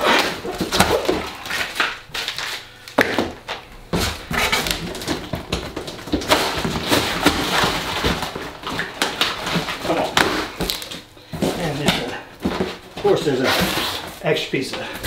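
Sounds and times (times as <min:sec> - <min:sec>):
cardboard crinkling and crunching: 0:00.0 - 0:02.7, 0:03.4 - 0:15.0.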